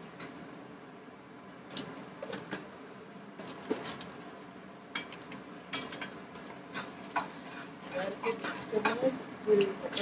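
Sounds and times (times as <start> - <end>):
utensils scraping steel pot: 6.7 - 9.1.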